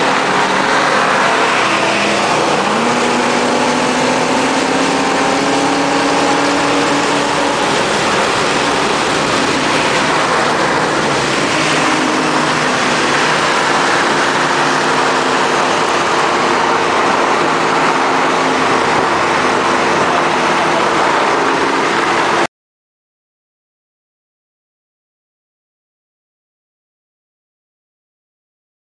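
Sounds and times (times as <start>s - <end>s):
car exhaust drone: 0.0s - 22.4s
road and wind noise: 0.0s - 22.5s.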